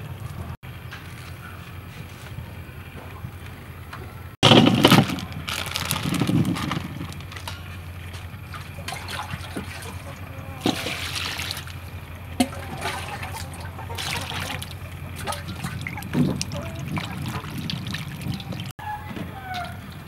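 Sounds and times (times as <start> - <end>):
water splashing into metal bowl: 8.5 - 18.7.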